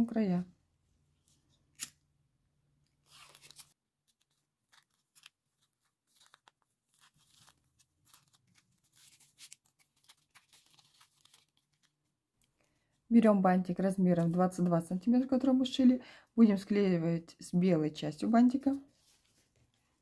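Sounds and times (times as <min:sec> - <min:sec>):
ribbon rustling: 0:02.9 - 0:13.1.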